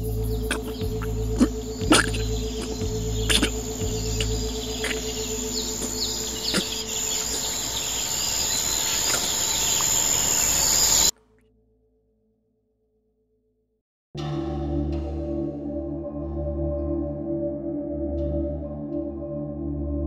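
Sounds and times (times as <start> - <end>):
crickets chirring: 0.0 - 11.1
low steady drone: 0.0 - 11.1
short bird chirps: 0.4 - 11.1.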